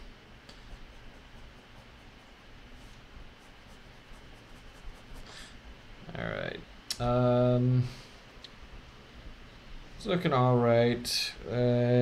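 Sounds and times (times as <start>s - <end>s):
pen scratching on paper: 0.8s - 2.3s, 3.3s - 5.3s.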